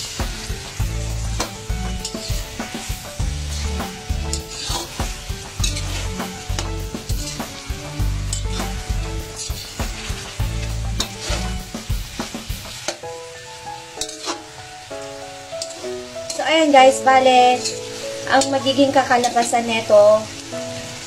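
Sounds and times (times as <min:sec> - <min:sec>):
background music with low bass: 0:00.0 - 0:12.8
utensil scraping frying pan: 0:00.0 - 0:13.1, 0:13.9 - 0:14.6, 0:15.5 - 0:21.0
food sizzling in frying pan: 0:00.0 - 0:21.0.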